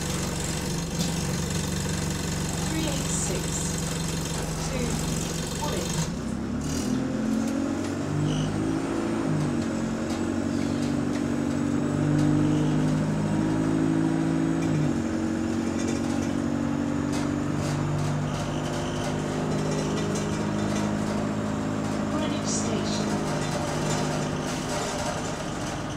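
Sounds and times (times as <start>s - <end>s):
bus engine droning: 0.0s - 25.9s
rattling fittings: 15.4s - 25.9s.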